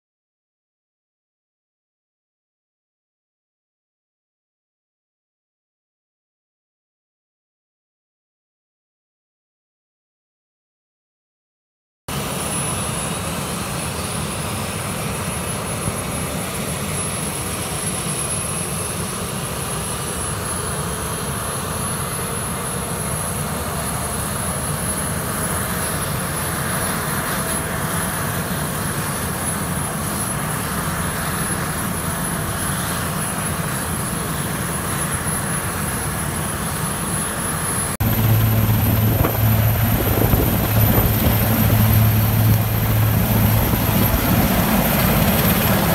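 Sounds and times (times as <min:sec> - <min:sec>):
helicopter rotor turning: 0:12.1 - 0:45.9
helicopter turbine whine: 0:12.1 - 0:45.9.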